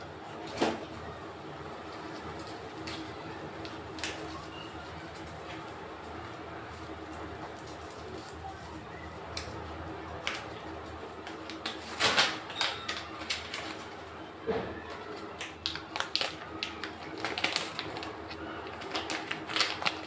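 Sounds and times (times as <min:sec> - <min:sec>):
plastic packaging crinkling: 0:01.8 - 0:20.0.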